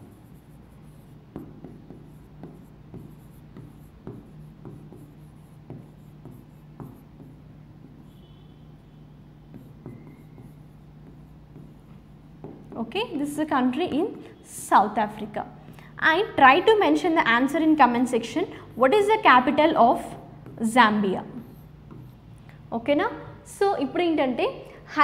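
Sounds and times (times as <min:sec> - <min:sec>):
writing taps and scratches on board: 0:00.0 - 0:08.2, 0:09.4 - 0:13.1, 0:20.0 - 0:22.4
steady low hum: 0:00.0 - 0:24.8.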